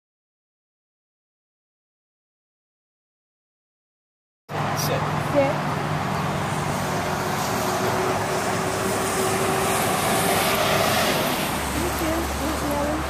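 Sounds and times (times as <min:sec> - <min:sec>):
road traffic rushing: 0:04.5 - 0:13.0.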